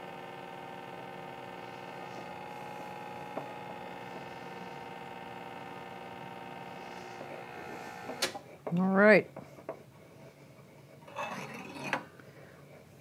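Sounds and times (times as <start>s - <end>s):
espresso machine pump running: 0.0s - 8.4s.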